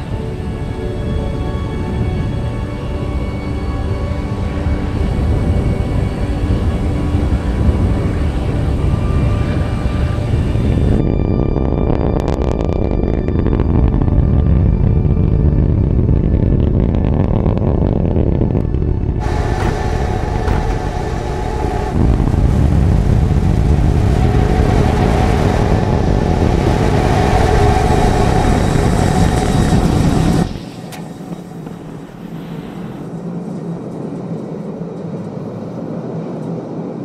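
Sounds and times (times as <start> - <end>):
rocket engines roaring: 0.0 - 37.0
quiet steady rushing noise: 17.1 - 36.6.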